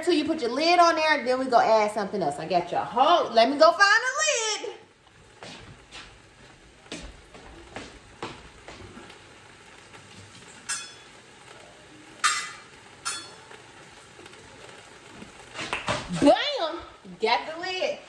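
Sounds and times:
cabbage frying in a pan: 0.0s - 18.0s
ringing metal clank: 10.7s - 11.1s.

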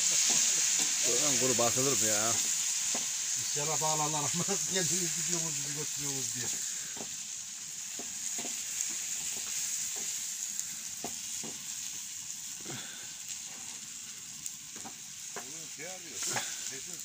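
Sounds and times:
vegetables sizzling in a frying pan: 0.0s - 17.0s
wooden spatula knocking pan: 7.9s - 10.2s, 11.0s - 11.6s, 14.8s - 15.6s.

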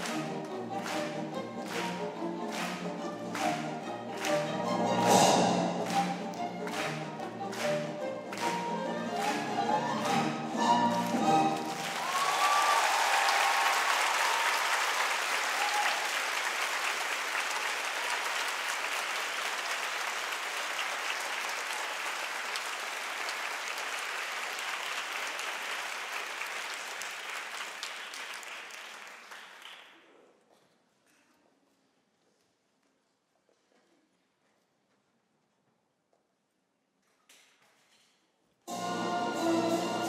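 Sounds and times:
audience applauding: 0.0s - 5.2s, 5.8s - 30.0s.

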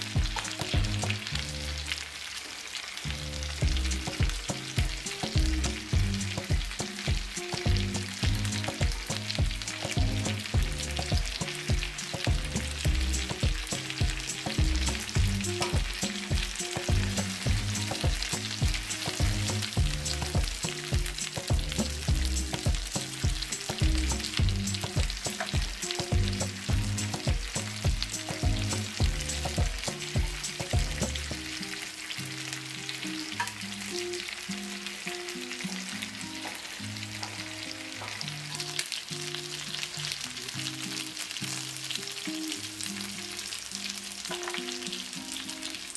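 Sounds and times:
chicken sizzling in oil: 0.0s - 45.9s
low notes in steady beat: 0.2s - 1.4s, 3.6s - 31.4s.

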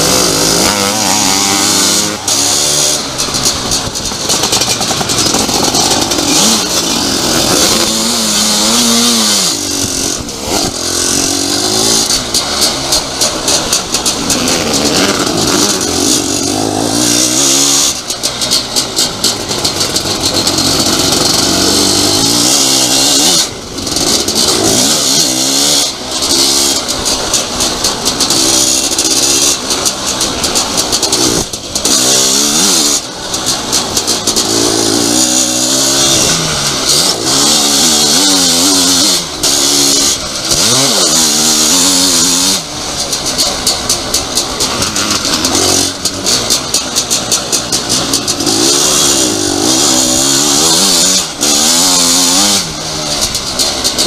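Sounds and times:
knocks and rattles: 0.0s - 54.0s
racing engine revving: 0.0s - 54.0s.

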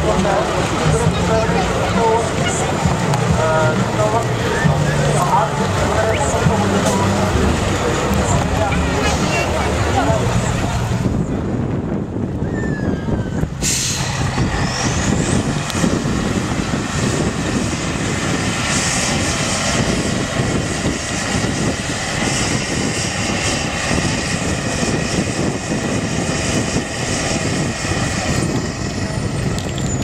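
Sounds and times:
diesel engine working hard: 0.0s - 30.0s.

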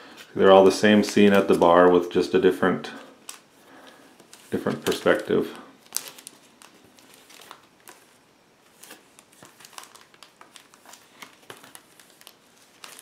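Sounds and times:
cardboard sleeves rustling: 0.0s - 2.0s, 2.6s - 13.0s.

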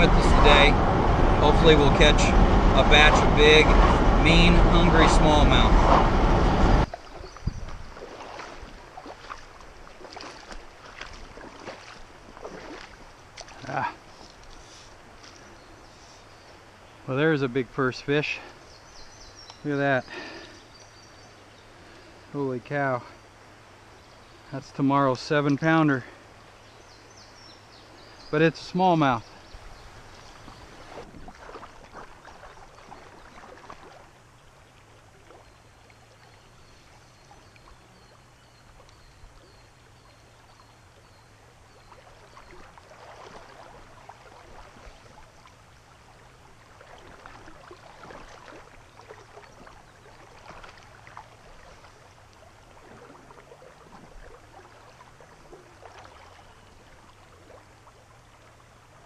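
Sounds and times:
creek water running over gravel: 0.0s - 6.1s, 6.8s - 59.0s
water splashing: 0.0s - 15.6s, 28.0s - 59.0s.

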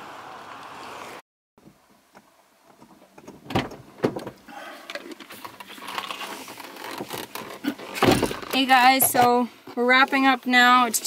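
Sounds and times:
thumps and rustling in a car: 2.7s - 11.0s.

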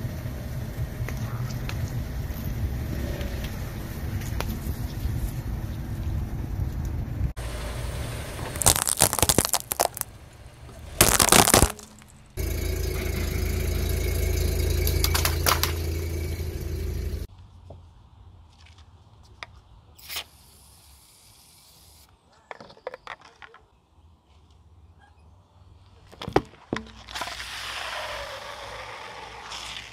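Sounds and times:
loud crunch: 8.4s - 10.2s, 10.8s - 16.8s
walnut shells cracking under tyre: 8.5s - 10.2s, 11.0s - 12.2s, 14.8s - 15.8s.

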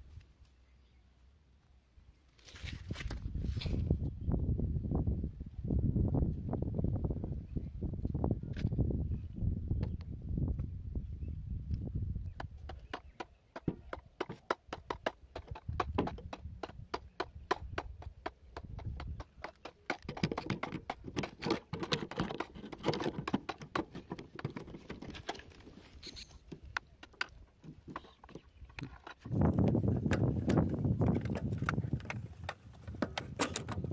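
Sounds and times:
hands tapping and clicking equipment: 12.3s - 33.8s.

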